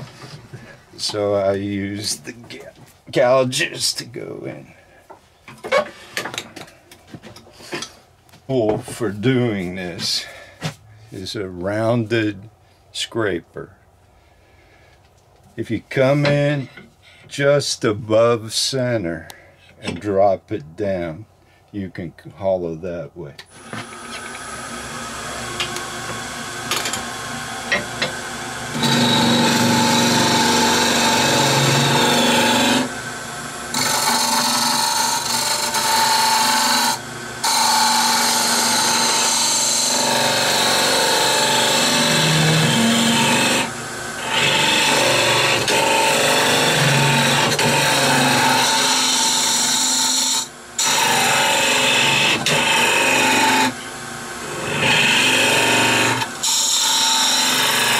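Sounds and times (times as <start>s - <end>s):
lathe motor hum: 23.6s - 57.9s
scraper cutting wood on lathe: 23.6s - 57.9s.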